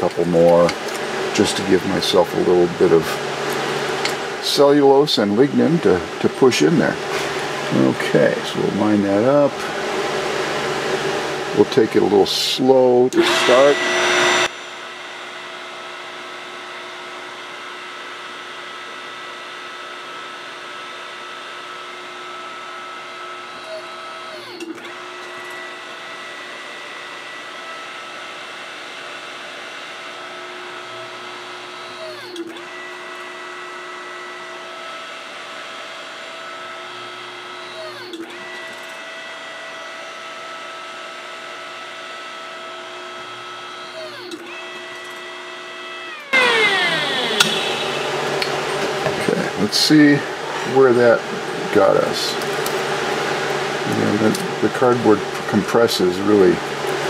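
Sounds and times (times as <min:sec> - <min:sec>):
hydraulic pump motor whining: 0:00.0 - 0:04.5, 0:13.1 - 0:14.6, 0:22.1 - 0:28.2, 0:30.4 - 0:55.7.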